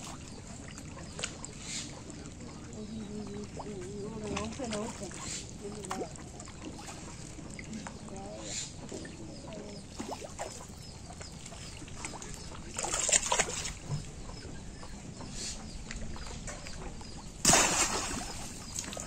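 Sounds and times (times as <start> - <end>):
water splashing: 0.0 - 14.9, 15.9 - 19.0
fish trap splashing into water: 12.8 - 13.8, 17.4 - 19.0.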